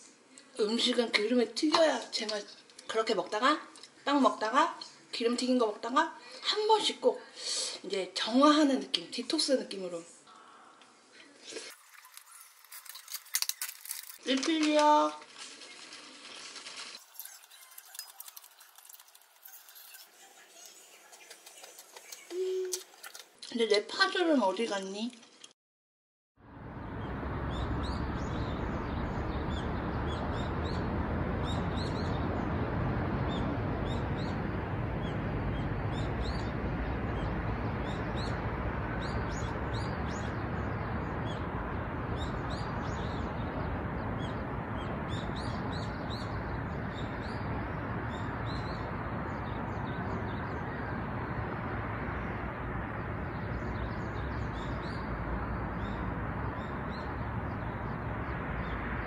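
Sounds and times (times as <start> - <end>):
small birds chirping: 11.2 - 23.2, 26.7 - 59.0
steady rushing background noise: 26.5 - 59.0.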